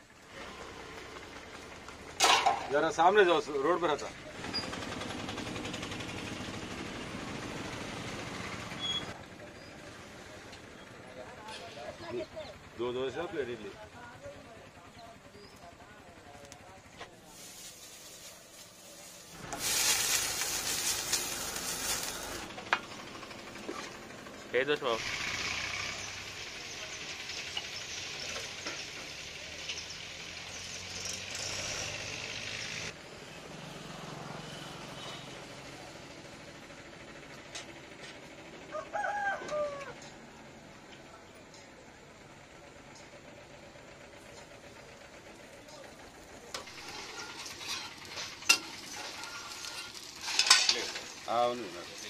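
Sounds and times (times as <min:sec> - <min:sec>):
batter sizzling on griddle: 0:17.2 - 0:24.0, 0:24.6 - 0:31.5, 0:44.7 - 0:52.0.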